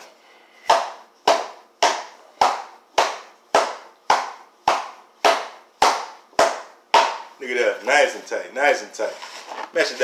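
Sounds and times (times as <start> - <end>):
hands pounding cardboard box: 0.6 - 7.3.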